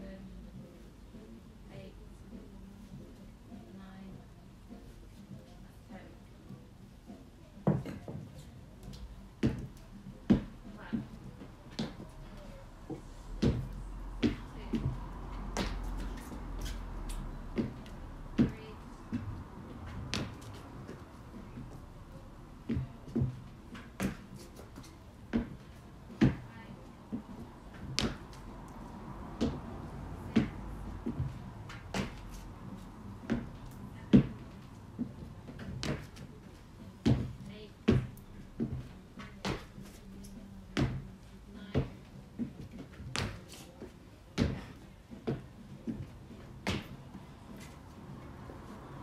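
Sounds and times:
feet thudding on wooden box: 0:27.1 - 0:28.4, 0:37.0 - 0:39.7.

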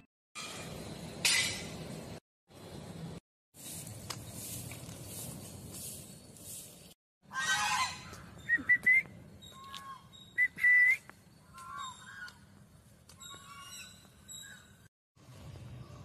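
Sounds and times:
geese honking: 0:07.2 - 0:08.3, 0:11.4 - 0:12.4
geese whistle-like calls: 0:07.3 - 0:12.4.

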